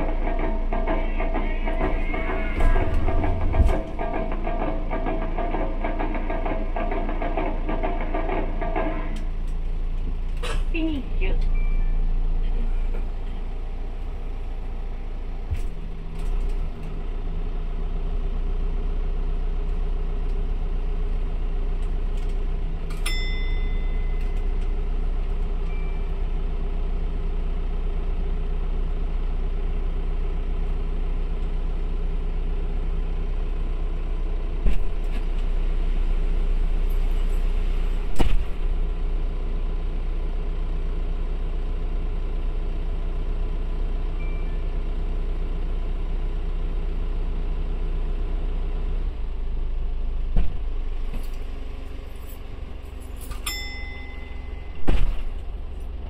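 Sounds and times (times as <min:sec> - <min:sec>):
sharp knocks: 0:00.0 - 0:09.2
diesel engine idling: 0:00.0 - 0:56.0
short electronic beep: 0:11.5 - 0:12.3.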